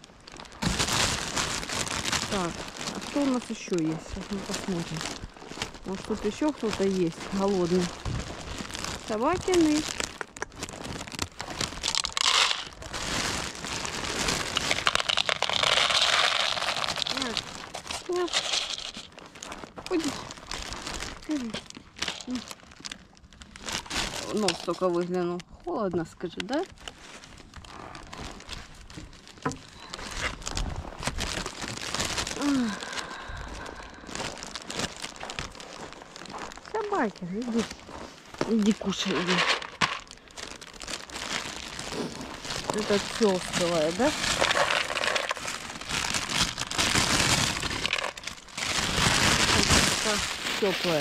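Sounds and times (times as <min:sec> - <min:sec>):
rustling near microphone: 0:00.0 - 0:22.6, 0:26.6 - 0:51.0
footsteps crunching on snow: 0:00.6 - 0:20.1, 0:33.7 - 0:40.1, 0:48.6 - 0:51.0.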